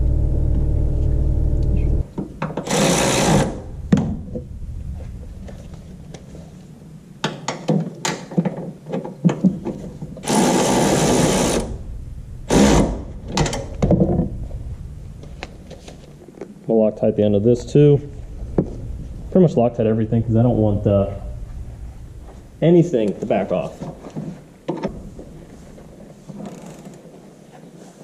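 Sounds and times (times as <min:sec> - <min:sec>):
low hum: 0:00.0 - 0:07.2, 0:09.6 - 0:26.1
air tool bursts: 0:02.6 - 0:03.6, 0:10.2 - 0:11.8, 0:12.5 - 0:13.1.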